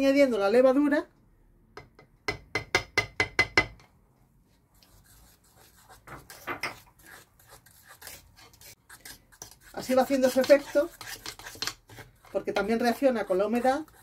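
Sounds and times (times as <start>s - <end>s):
fork stirring and scraping batter: 4.7s - 14.0s.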